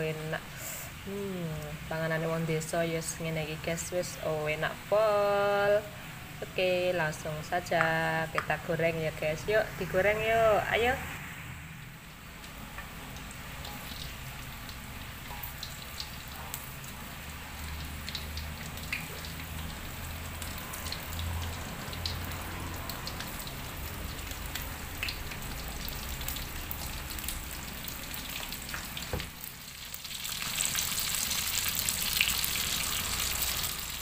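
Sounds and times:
fish sizzling in hot oil: 0:07.6 - 0:34.0.

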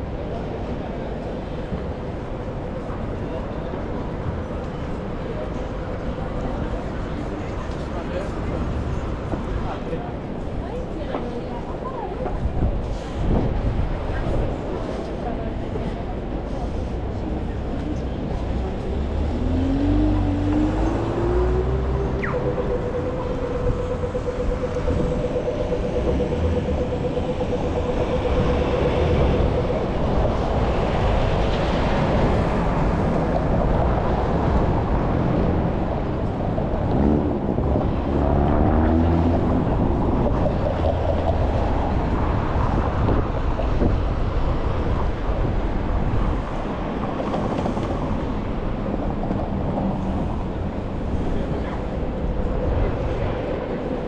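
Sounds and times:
wind on microphone: 0:11.8 - 0:54.0
cars passing: 0:12.8 - 0:54.0.

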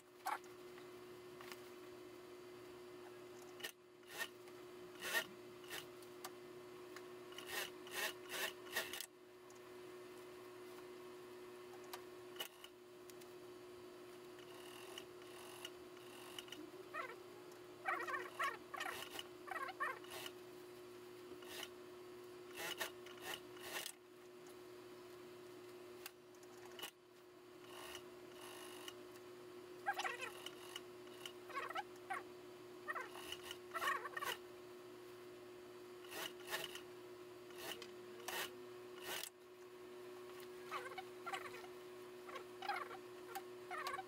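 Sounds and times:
steady hum: 0:00.0 - 0:44.0
small clicks: 0:14.1 - 0:16.6.

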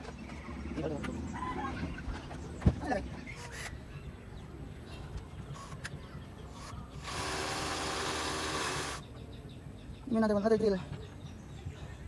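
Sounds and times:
cordless drill motor running: 0:07.0 - 0:09.0.

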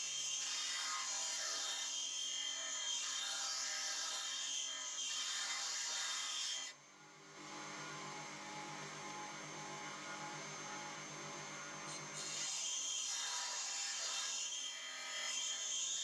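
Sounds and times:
bench grinder grinding steel: 0:00.0 - 0:06.8, 0:07.8 - 0:16.0
grinder motor hum: 0:07.0 - 0:12.4.

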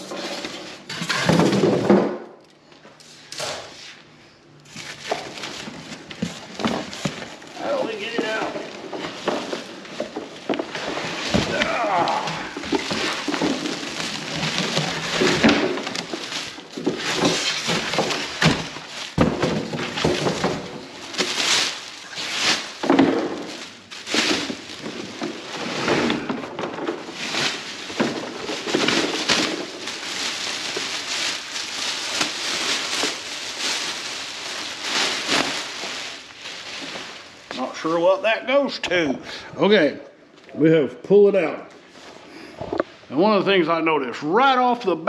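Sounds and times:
plastic bag crinkling: 0:04.6 - 0:38.2.

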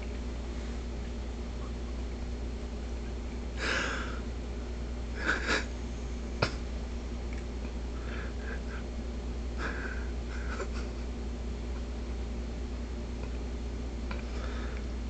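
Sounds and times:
low steady hum: 0:00.0 - 0:15.0
stifled snorts of laughter: 0:05.2 - 0:05.7, 0:09.6 - 0:11.1.

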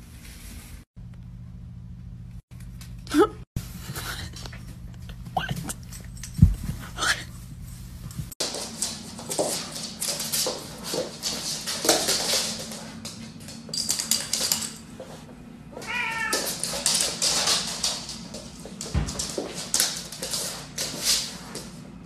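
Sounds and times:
cat meowing: 0:15.8 - 0:16.5
claws skittering on wooden floor: 0:15.8 - 0:21.8.

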